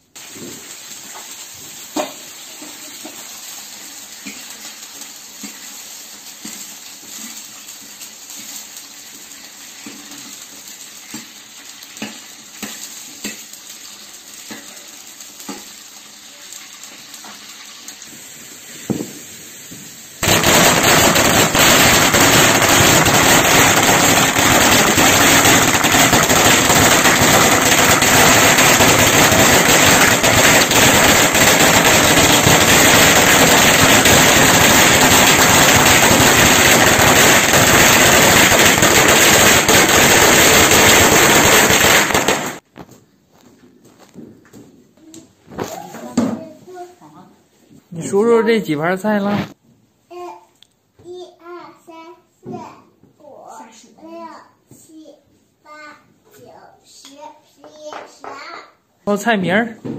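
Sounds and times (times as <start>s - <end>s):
food frying in a wok: 0.0s - 42.8s
firecrackers going off: 0.0s - 43.4s, 45.5s - 46.8s.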